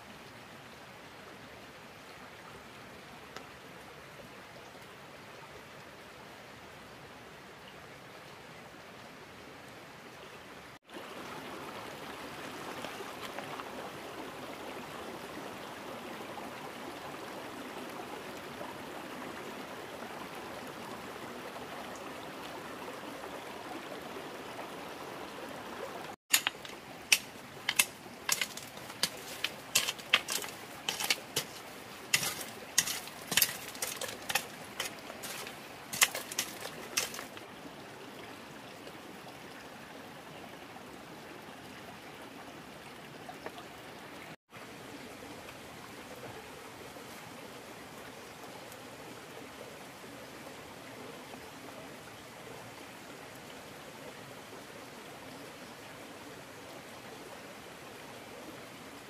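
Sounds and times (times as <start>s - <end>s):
running water rushing: 0.0s - 59.0s
sharp irregular knocks: 26.3s - 37.3s.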